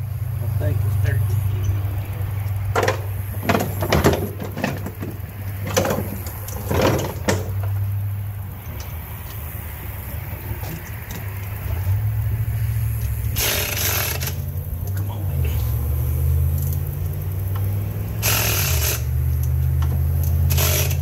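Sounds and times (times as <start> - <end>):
steady low hum: 0.0 - 20.6
metal clatter: 2.5 - 7.9, 13.4 - 14.6.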